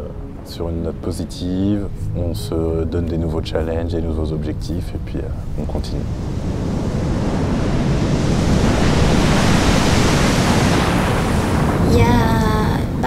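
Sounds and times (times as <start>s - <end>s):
sea waves breaking into surf: 5.6s - 13.0s.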